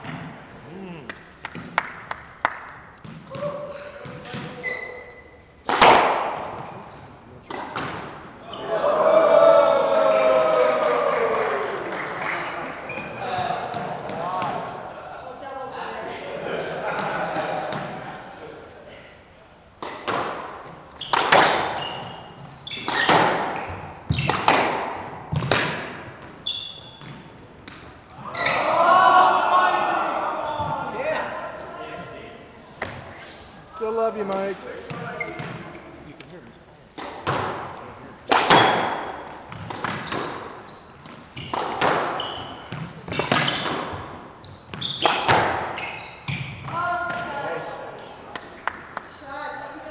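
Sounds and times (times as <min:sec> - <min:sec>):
squash ball hitting racket and walls: 0:00.0 - 0:00.6, 0:01.5 - 0:08.7, 0:12.9 - 0:14.8, 0:17.0 - 0:18.0, 0:19.8 - 0:28.7, 0:32.8 - 0:33.3, 0:34.3 - 0:35.8, 0:37.0 - 0:47.6
sneakers squeaking on wooden floor: 0:03.0 - 0:05.5, 0:06.6 - 0:08.7, 0:12.8 - 0:14.6, 0:20.1 - 0:24.5, 0:25.3 - 0:28.7, 0:34.3 - 0:36.1, 0:39.5 - 0:47.3.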